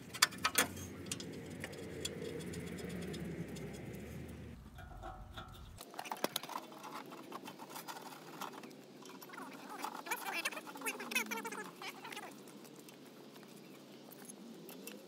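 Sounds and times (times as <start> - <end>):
metal clicks and scrapes: 0.0 - 11.2
low rumble: 0.9 - 5.8.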